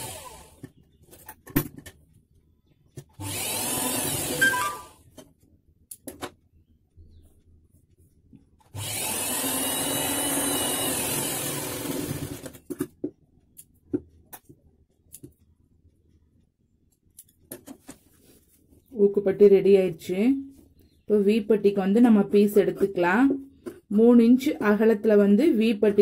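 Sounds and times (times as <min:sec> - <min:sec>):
electric sewing machine running: 0:00.0 - 0:00.6, 0:03.2 - 0:05.0, 0:08.7 - 0:12.6.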